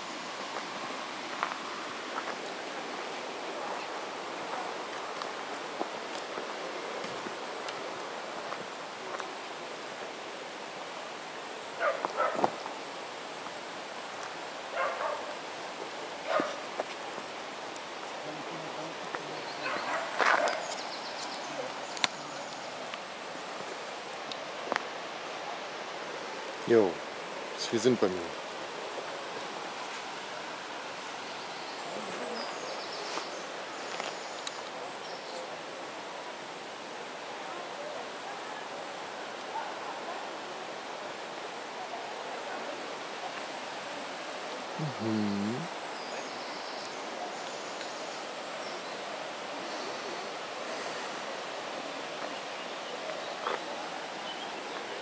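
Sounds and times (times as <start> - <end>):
running water rushing: 0.0 - 55.0
dog barking: 11.8 - 12.5, 14.7 - 15.4, 16.2 - 16.6, 19.6 - 20.6, 39.5 - 40.2.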